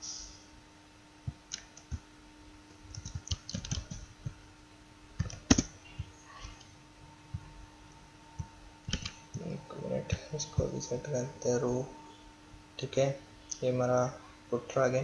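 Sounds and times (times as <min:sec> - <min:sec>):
faint steady hum: 0:00.0 - 0:15.0
keyboard keystrokes: 0:02.9 - 0:04.0, 0:05.2 - 0:05.7, 0:08.9 - 0:09.2.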